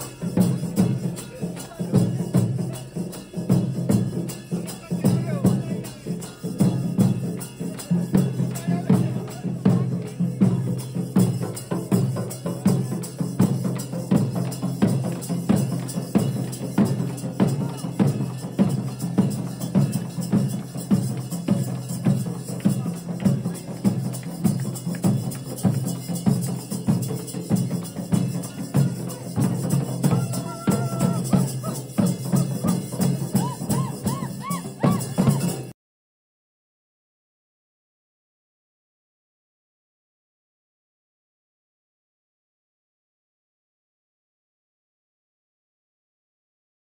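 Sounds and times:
barrel drums beaten fast: 0:00.0 - 0:35.7.

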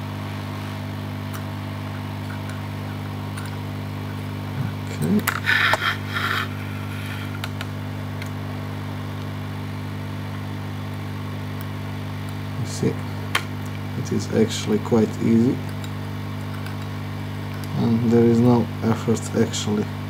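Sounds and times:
hot-air blower humming: 0:00.0 - 0:20.0
metal pick scraping: 0:01.9 - 0:07.7.

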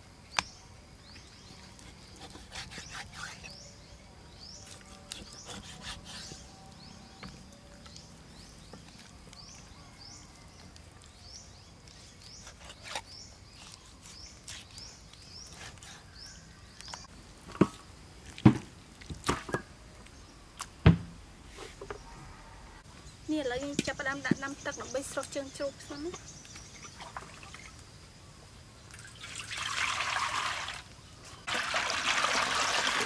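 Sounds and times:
bird chirping: 0:00.3 - 0:17.1, 0:21.8 - 0:29.5
knife cutting meat on wooden board: 0:02.0 - 0:03.6, 0:04.6 - 0:06.4.

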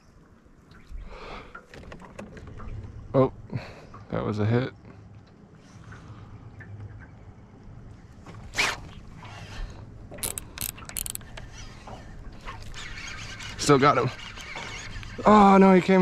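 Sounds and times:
reel drag sharp clicks: 0:10.1 - 0:11.7
fishing reel cranking: 0:10.2 - 0:11.8.

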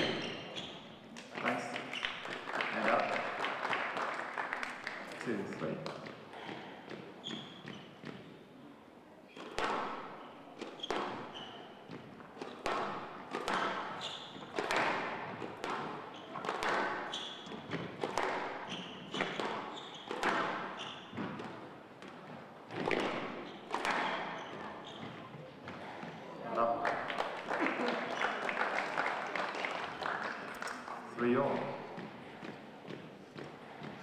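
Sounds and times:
shoes squeaking on court: 0:00.0 - 0:02.4, 0:05.9 - 0:08.5, 0:09.3 - 0:26.4, 0:27.8 - 0:28.5
squash ball hits: 0:09.3 - 0:26.2.

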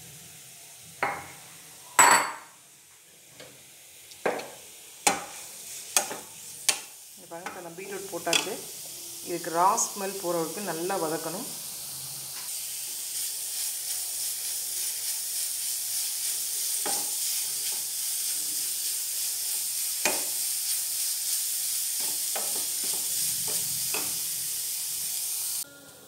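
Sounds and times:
beetroot sizzling in a pan: 0:00.0 - 0:26.0
spatula scraping and tapping pan: 0:04.2 - 0:07.6, 0:08.3 - 0:08.6, 0:16.8 - 0:17.9, 0:20.0 - 0:20.4, 0:22.0 - 0:24.2.

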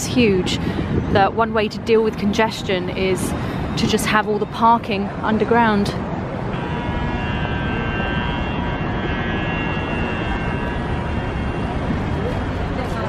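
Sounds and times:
traffic rumble: 0:00.0 - 0:13.0
high multi-tone whine: 0:03.7 - 0:13.0.

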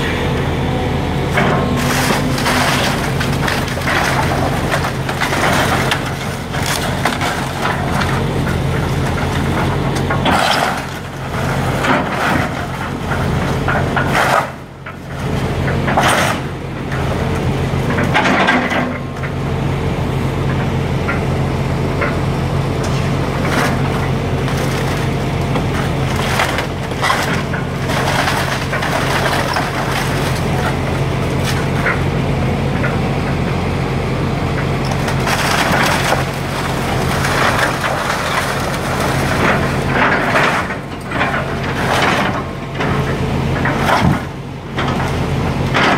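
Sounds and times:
excavator diesel engine hum: 0:00.0 - 0:45.9
wood cracking and splintering: 0:01.3 - 0:17.0, 0:22.8 - 0:32.1, 0:34.6 - 0:45.9.

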